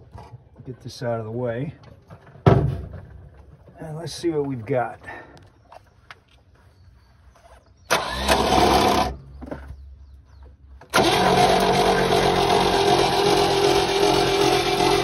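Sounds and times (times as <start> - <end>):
engine cranking by starter: 7.9 - 9.3, 10.8 - 15.0.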